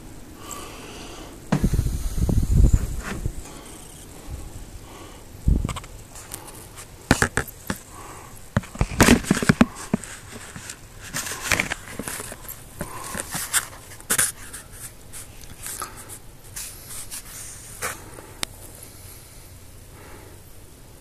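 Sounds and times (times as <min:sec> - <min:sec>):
handling scrapes on plastic tub: 0:02.5 - 0:03.8, 0:08.6 - 0:18.1.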